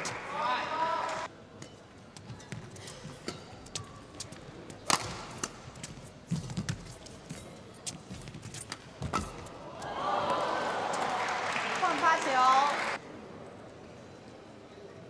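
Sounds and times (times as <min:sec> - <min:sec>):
rackets hitting shuttlecock: 0:04.8 - 0:09.5.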